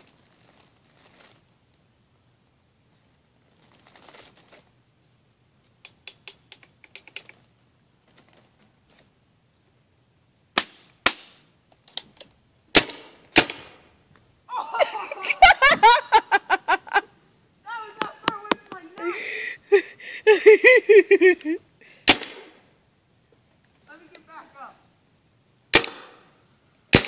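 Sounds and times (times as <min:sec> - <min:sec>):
paintball gun shots: 0:12.7 - 0:13.8, 0:22.0 - 0:22.6, 0:25.7 - 0:26.3
person crying out: 0:14.5 - 0:16.9, 0:17.7 - 0:21.6.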